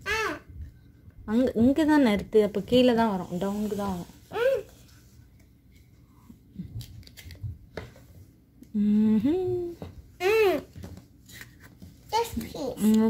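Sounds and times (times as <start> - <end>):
person humming: 8.7 - 9.8.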